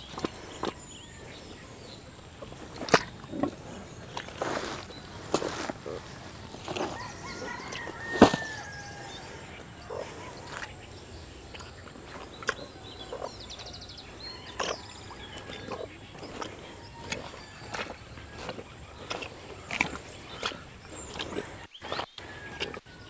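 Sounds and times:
fowl calling: 3.3 - 10.9.

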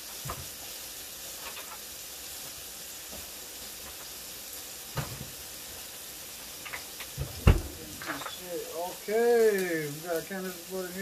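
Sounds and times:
steak sizzling in pan: 0.0 - 11.0.

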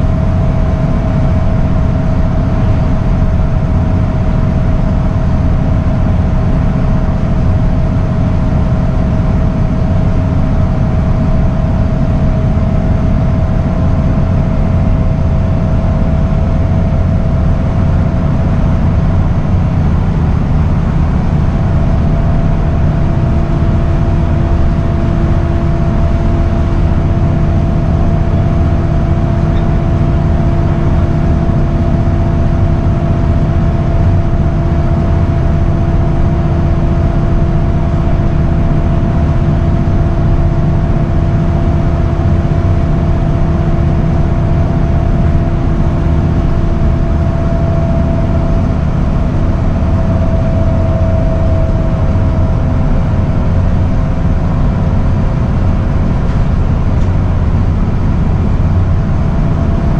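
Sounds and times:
bus engine drone: 0.0 - 59.9
drivetrain whine: 0.0 - 59.9
road noise: 44.2 - 59.9.

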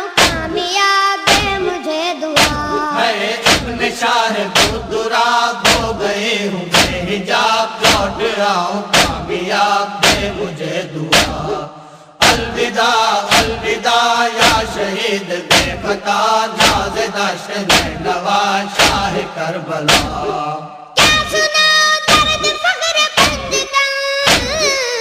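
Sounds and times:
chanted devotional singing: 0.0 - 25.0
heavy drum beat: 0.2 - 0.6, 1.3 - 1.8, 2.4 - 11.6, 12.2 - 13.8, 14.4 - 14.9, 15.5 - 16.0, 16.6 - 17.1, 17.7 - 18.2, 18.8 - 19.3, 19.9 - 20.4, 21.0 - 21.5, 22.1 - 22.6, 23.2 - 23.7, 24.3 - 24.8.

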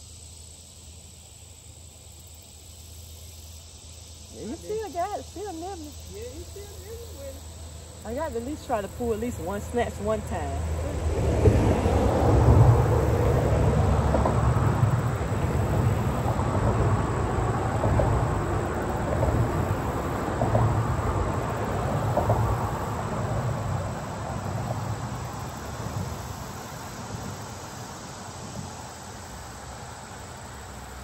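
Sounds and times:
crickets chirring: 0.0 - 31.0.

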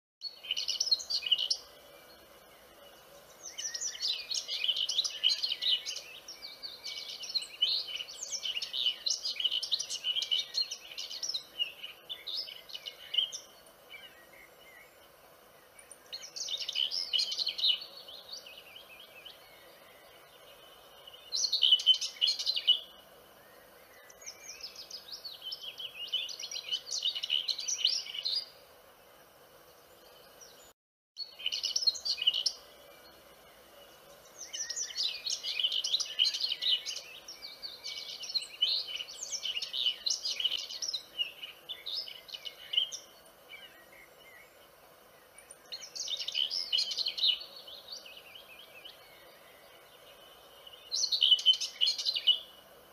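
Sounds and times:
faint steady high tone: 31.2 - 44.6.

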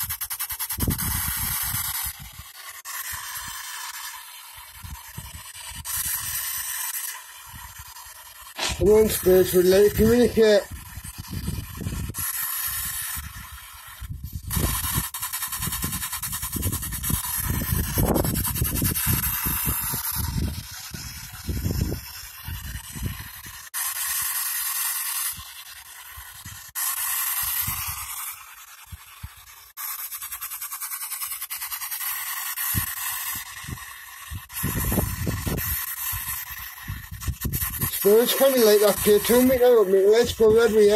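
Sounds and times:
radio static sweeping channels: 8.6 - 10.8, 37.8 - 40.9.

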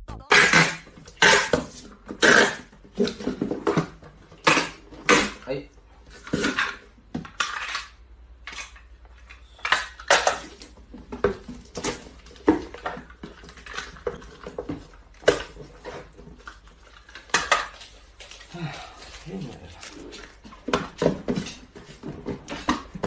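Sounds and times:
packing tape pulled and cut: 0.3 - 3.2.

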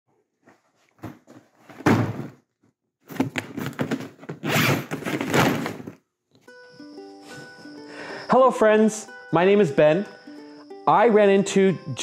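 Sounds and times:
bag thumping onto table: 1.0 - 2.4
zipper pulled open: 4.4 - 5.5.

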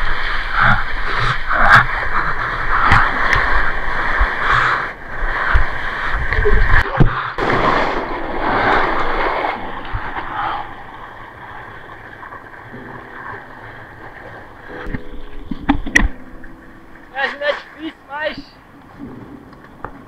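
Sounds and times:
whitewater rushing over surfboard: 0.0 - 15.0.

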